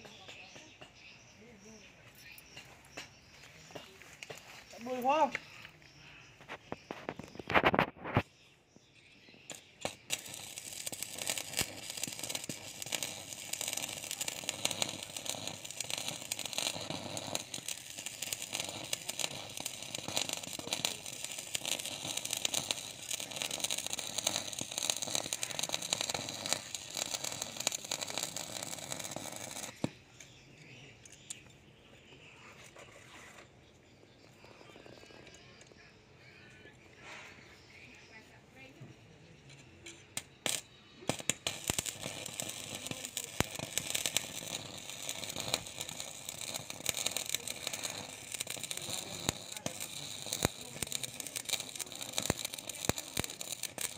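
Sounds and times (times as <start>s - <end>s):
welding arc crackling sizzle: 6.4s - 8.3s, 9.0s - 30.4s, 39.8s - 53.9s.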